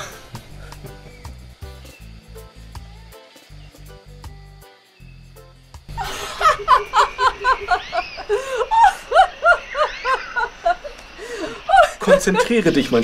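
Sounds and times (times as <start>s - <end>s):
woman giggling: 5.9s - 12.7s.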